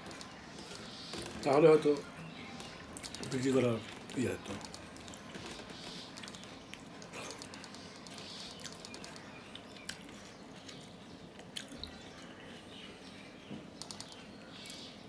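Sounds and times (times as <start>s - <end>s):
sharp clicks: 4.1s - 10.0s, 13.8s - 14.8s
wet chewing and lip smacks: 6.0s - 12.3s.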